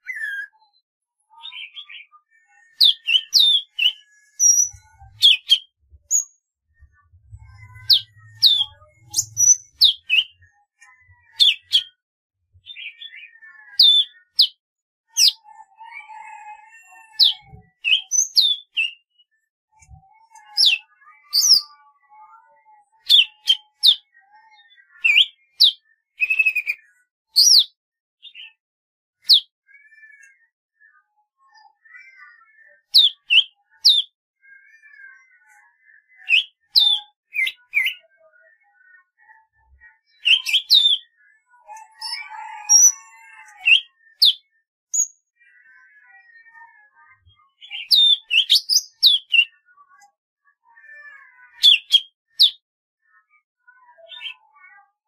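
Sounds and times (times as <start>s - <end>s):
bird chirping and whistling: 0.0s - 0.5s, 2.8s - 6.3s, 7.2s - 10.4s, 15.2s - 19.0s, 20.3s - 21.7s, 27.4s - 28.5s, 32.9s - 34.1s, 36.2s - 38.0s, 40.2s - 41.1s, 41.7s - 44.4s, 47.7s - 49.5s.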